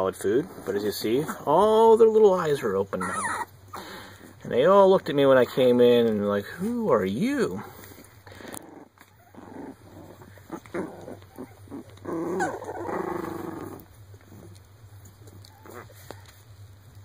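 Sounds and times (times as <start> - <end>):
puppies grunting and squeaking: 0.0 - 16.7
puppy crying: 2.9 - 3.9, 8.7 - 14.5.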